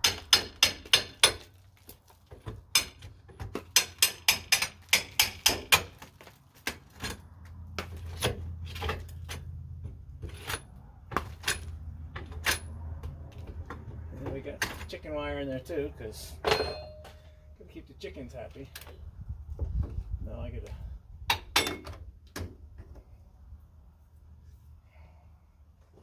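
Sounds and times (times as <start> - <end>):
hammer chipping mortar: 0.0 - 1.5, 2.4 - 7.2.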